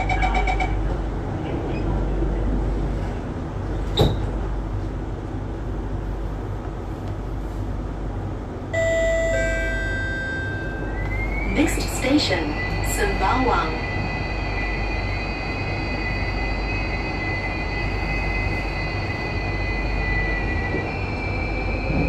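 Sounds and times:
low hum inside train car: 0.0s - 22.0s.

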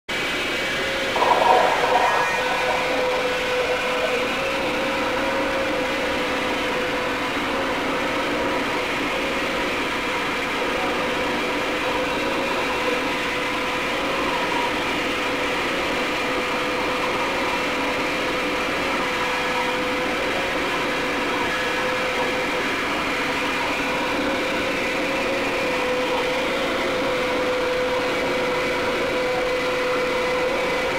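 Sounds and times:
television static hiss: 1.2s - 4.4s
constant hum: 1.2s - 5.6s.

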